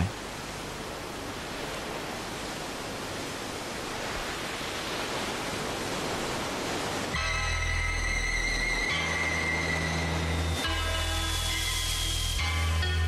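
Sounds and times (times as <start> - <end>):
sea surf rushing: 0.0 - 13.0
music with long held chords: 7.2 - 13.0.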